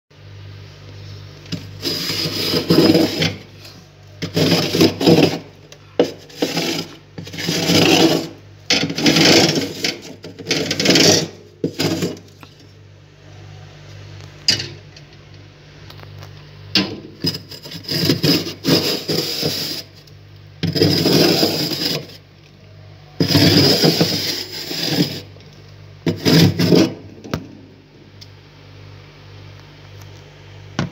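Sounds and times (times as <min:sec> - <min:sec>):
low steady hum: 0:00.1 - 0:30.9
metal cup scraping frost: 0:01.5 - 0:12.6, 0:17.2 - 0:22.2, 0:23.2 - 0:25.3, 0:26.1 - 0:27.0.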